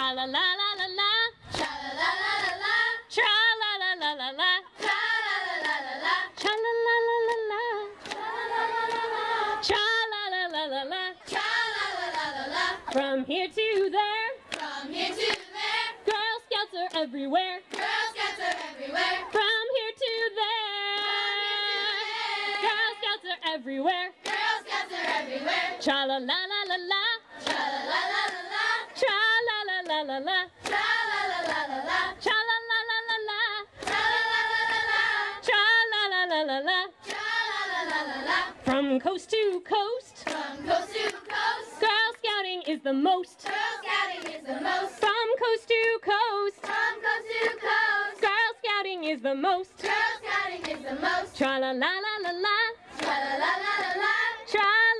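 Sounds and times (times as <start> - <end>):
woman singing: 0.0 - 15.0, 16.0 - 24.3, 25.5 - 27.3, 29.0 - 30.6, 31.3 - 33.7, 35.4 - 37.1, 37.9 - 41.1, 41.8 - 53.2, 53.9 - 54.9
girls singing a cappella: 0.0 - 54.9
hands clapping: 1.5 - 2.7, 4.8 - 9.8, 11.2 - 13.1, 13.7 - 16.3, 17.7 - 19.5, 24.2 - 25.3, 27.4 - 29.2, 30.6 - 31.8, 33.8 - 34.2, 37.0 - 38.8, 40.2 - 42.8, 43.4 - 45.2, 46.6 - 48.3, 49.8 - 51.6, 52.2 - 54.2.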